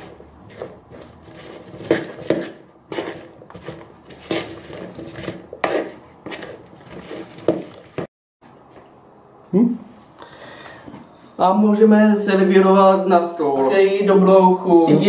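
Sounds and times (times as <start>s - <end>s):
utensil scraping a plastic bowl: 0.0s - 8.1s.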